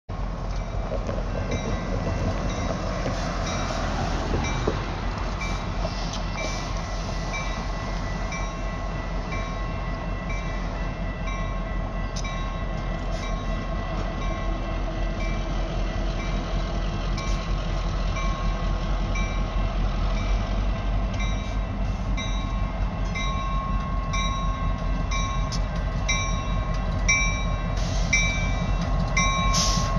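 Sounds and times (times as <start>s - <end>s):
railroad crossing bell ringing: 0.2s - 29.9s.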